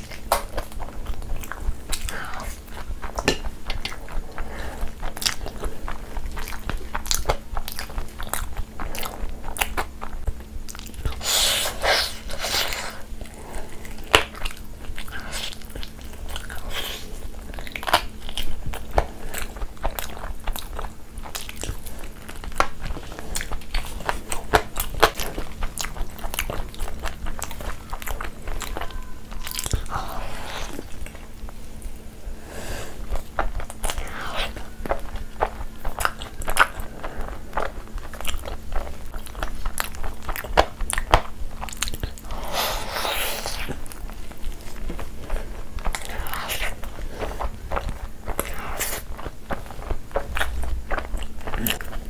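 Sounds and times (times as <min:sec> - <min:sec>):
person chewing crunchy food: 0:00.0 - 0:52.0.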